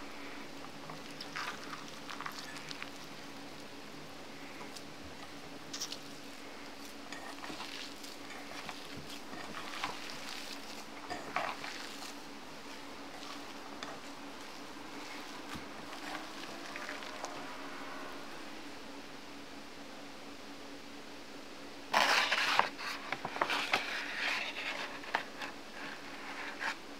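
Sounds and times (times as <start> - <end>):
steady low hum: 0.0 - 26.9
potatoes squishing and crumbling: 0.6 - 17.5.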